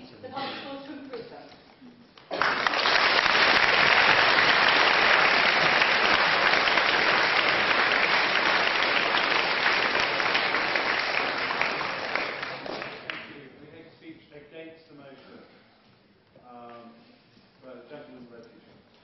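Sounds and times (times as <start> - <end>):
audience applauding: 2.2 - 13.4.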